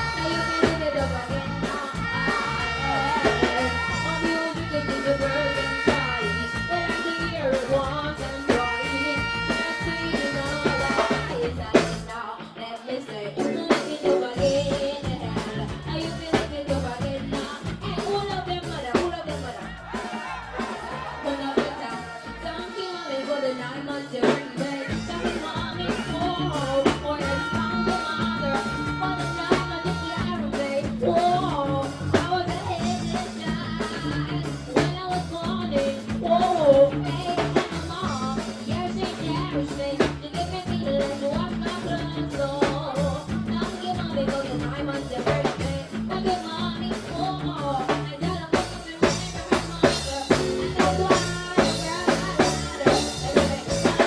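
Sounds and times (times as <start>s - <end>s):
dancehall beat with bass line: 0.0s - 12.1s, 14.4s - 42.3s.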